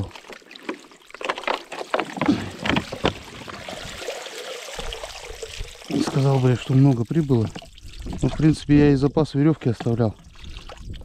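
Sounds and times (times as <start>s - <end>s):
water splashing in ice hole: 0.0s - 8.7s
water running off bottle: 0.0s - 8.9s.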